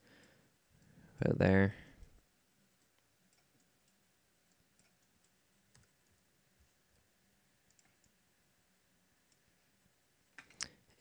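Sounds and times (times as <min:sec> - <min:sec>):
computer mouse clicks: 0:02.8 - 0:06.3, 0:07.6 - 0:08.2.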